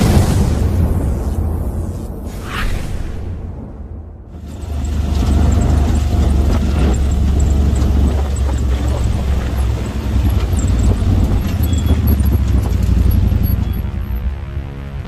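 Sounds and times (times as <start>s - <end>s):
vehicle engine running: 4.3s - 15.0s
vehicle body knocks and rattles: 4.5s - 13.6s.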